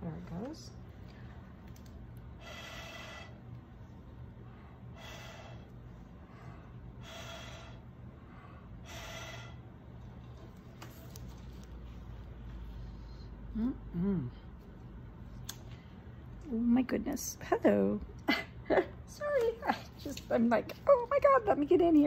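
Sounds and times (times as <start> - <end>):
person breathing close: 2.4 - 3.5, 4.4 - 9.7.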